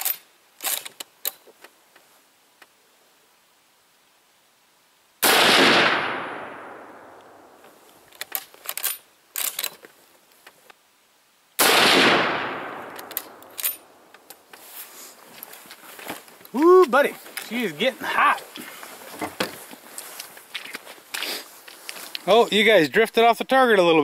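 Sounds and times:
rifle shots with echo: 5.2s - 7.4s, 11.6s - 13.4s
rifle bolt metallic clicks: 8.1s - 9.8s, 12.7s - 14.4s.

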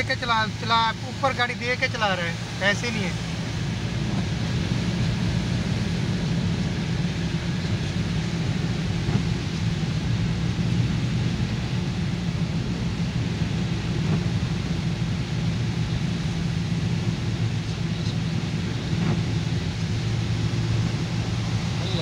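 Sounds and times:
car engine and road hum: 0.0s - 22.0s
rain hissing: 0.0s - 22.0s
tyres on wet road: 0.0s - 22.0s.

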